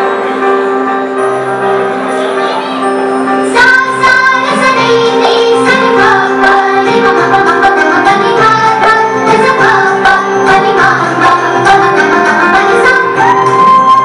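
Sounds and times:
woman singing: 3.6s - 14.0s.

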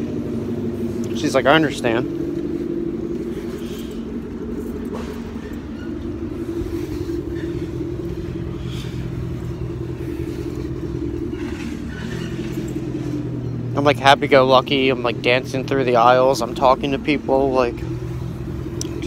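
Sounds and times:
low rumble: 0.0s - 13.8s.

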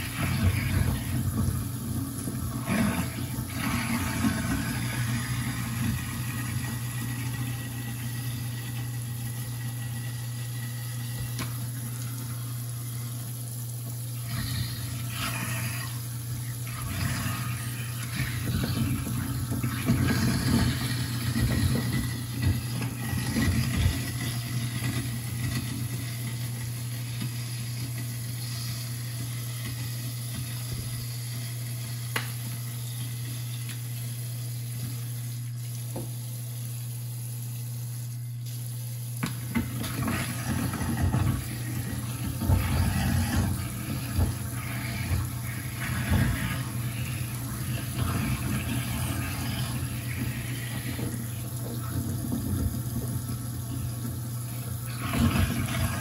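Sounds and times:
grinding and churning: 0.0s - 9.2s, 14.2s - 26.4s, 39.4s - 56.0s
garbage disposal motor humming: 0.0s - 56.0s
tap water flowing: 0.0s - 56.0s.

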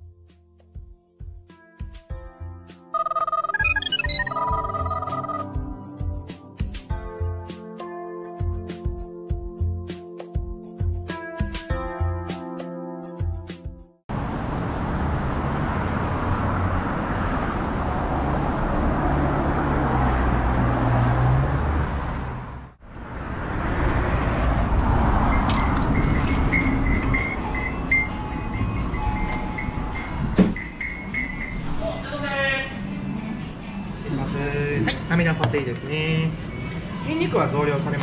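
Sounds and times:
short high beeps: 3.0s - 5.5s
city street rumble: 14.1s - 38.0s.

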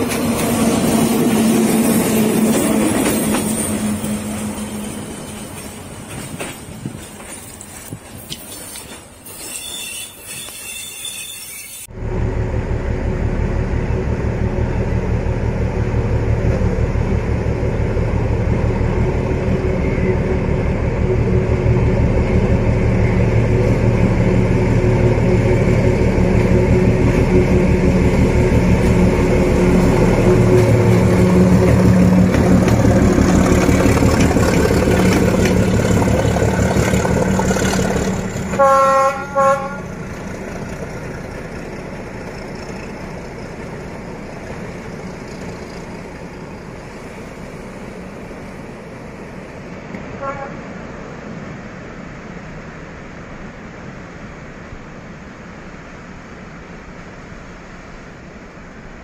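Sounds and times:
train running noise: 0.0s - 59.0s
diesel locomotive engine throbbing: 11.9s - 51.6s.

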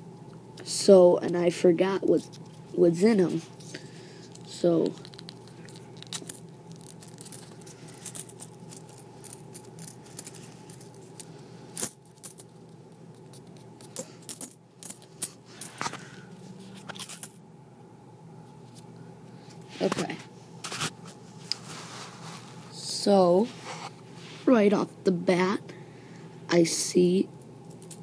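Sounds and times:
coins clinking and jingling: 6.1s - 11.0s, 11.8s - 12.5s, 13.9s - 15.8s, 16.9s - 17.6s, 27.6s - 28.0s.

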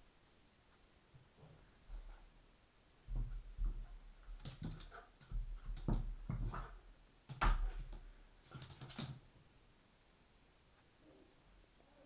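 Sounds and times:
dog claws scrabbling on floor: 3.1s - 9.2s.

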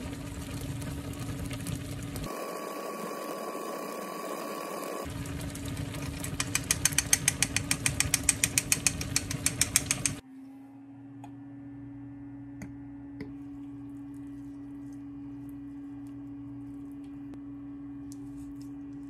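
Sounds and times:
rapid metallic clicking: 6.3s - 10.2s.

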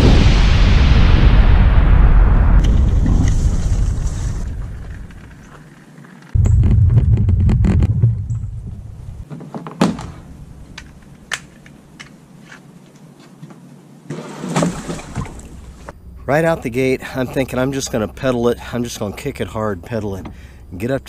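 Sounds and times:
cart wheels rolling on pavement: 3.4s - 8.2s.

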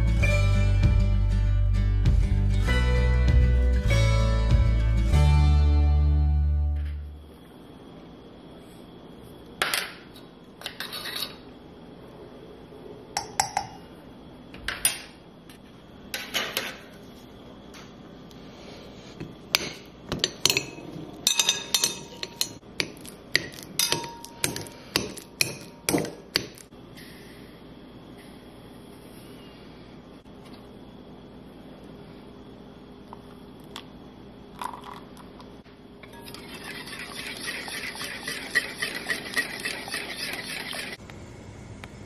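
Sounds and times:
utensil tapping glass bowl: 13.2s - 13.8s
utensils clinking on dishes: 19.6s - 26.6s, 36.0s - 41.0s.

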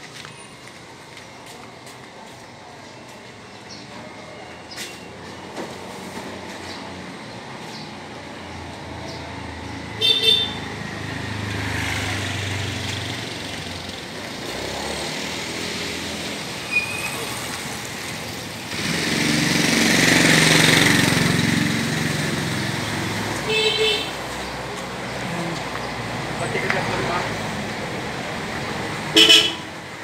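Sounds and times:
street traffic: 0.0s - 30.0s
passing vehicle engine: 5.6s - 30.0s
vehicle horn toots: 10.0s - 10.6s, 23.4s - 24.2s, 29.1s - 29.7s.

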